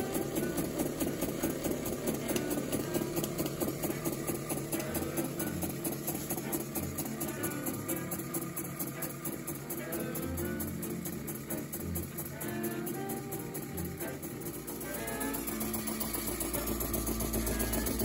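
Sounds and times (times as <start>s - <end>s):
toy steam engine running: 0.0s - 18.0s.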